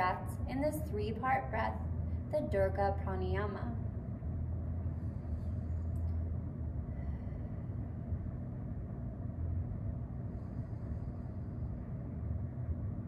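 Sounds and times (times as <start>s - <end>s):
low room rumble: 0.0s - 13.0s.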